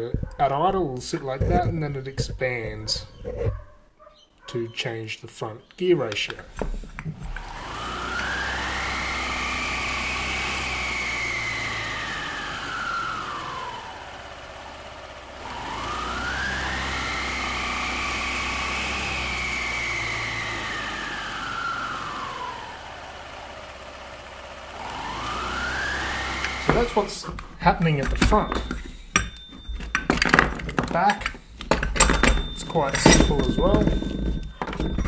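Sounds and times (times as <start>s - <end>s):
belt drive whine: 6.1s - 35.0s
scooter engine revving: 7.1s - 29.4s.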